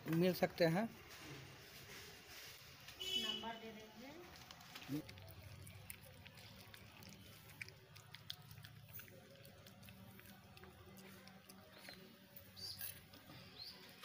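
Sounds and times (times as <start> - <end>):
puppy eating from steel bowl: 4.3 - 12.6.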